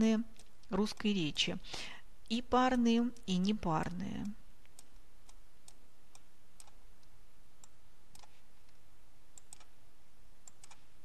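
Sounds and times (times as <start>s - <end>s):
computer mouse clicks: 0.3s - 1.2s, 4.2s - 8.8s, 9.4s - 9.7s, 10.4s - 10.9s.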